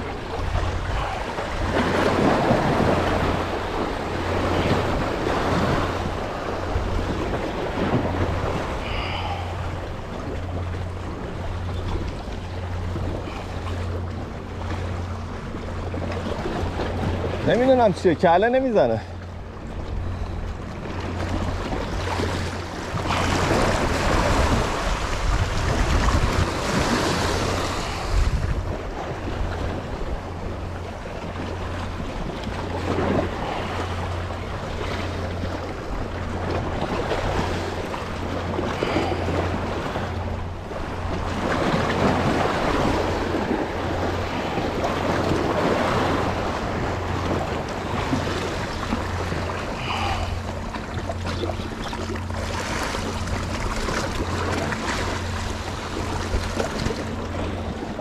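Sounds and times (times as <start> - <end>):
waves washing against rocks: 0.0 - 9.7, 22.0 - 29.9, 36.5 - 58.0
wind buffeting microphone: 19.4 - 58.0.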